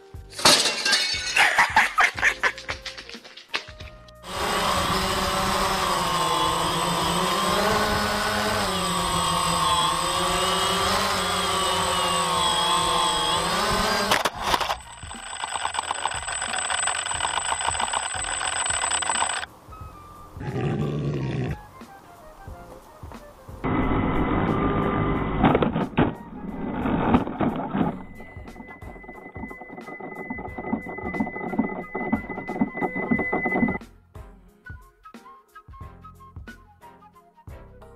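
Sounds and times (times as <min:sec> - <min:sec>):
drone motors whining: 0:04.2 - 0:19.5, 0:23.6 - 0:33.8
fast rattling buzz: 0:04.2 - 0:19.5, 0:23.6 - 0:33.8.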